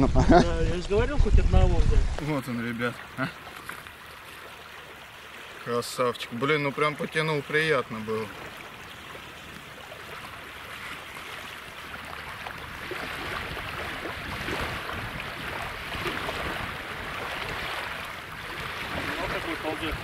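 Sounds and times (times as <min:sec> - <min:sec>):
water sloshing and splashing: 0:01.8 - 0:20.0.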